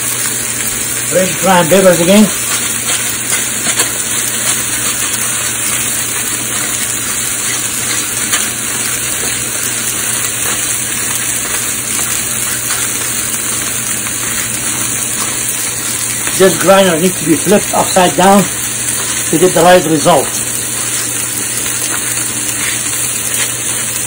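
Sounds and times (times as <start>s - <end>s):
steaks sizzling in pans: 0.0s - 24.0s.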